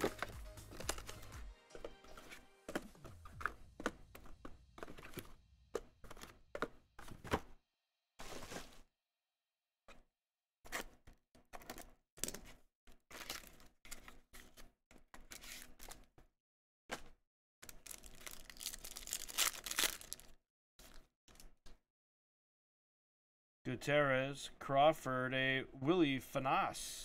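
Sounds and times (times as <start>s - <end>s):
card packaging crinkling and tearing: 0.0s - 1.4s, 13.1s - 14.5s, 17.6s - 20.4s.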